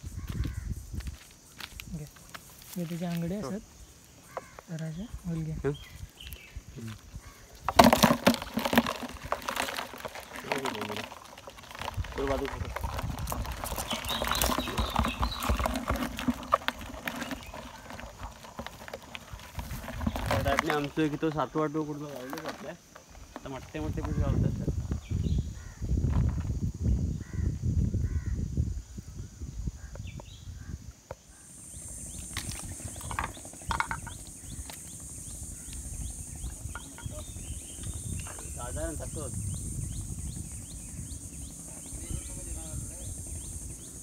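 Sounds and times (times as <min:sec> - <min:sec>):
wind rumble on microphone: 0:00.0 - 0:02.1, 0:11.9 - 0:16.3, 0:23.7 - 0:31.0, 0:31.8 - 0:44.0
crabs scraping on plastic: 0:07.6 - 0:21.2, 0:22.0 - 0:24.1, 0:31.7 - 0:38.6
high-pitched insect drone: 0:10.2 - 0:44.0.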